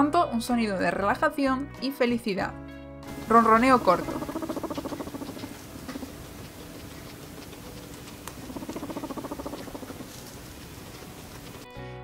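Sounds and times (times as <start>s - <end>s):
guinea pig purring: 3.1s - 11.6s.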